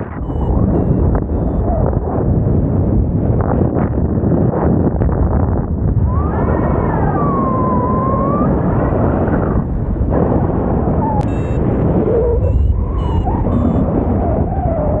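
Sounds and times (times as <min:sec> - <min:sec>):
wind buffeting microphone: 0:00.0 - 0:15.0
whistle-like tone: 0:00.2 - 0:01.8, 0:11.2 - 0:15.0.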